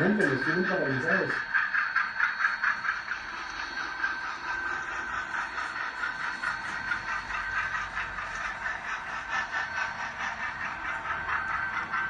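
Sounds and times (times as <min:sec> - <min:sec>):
model train whirring: 0:00.0 - 0:12.0
wheels rattling on rails: 0:00.0 - 0:12.0.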